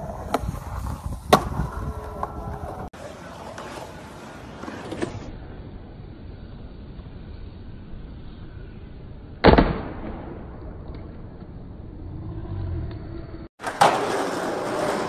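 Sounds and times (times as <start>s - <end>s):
skateboard wheels rolling: 0.0s - 9.3s, 13.6s - 15.0s
skateboard landing on concrete: 1.2s - 2.8s, 13.6s - 15.0s
skateboard clacks: 13.6s - 15.0s.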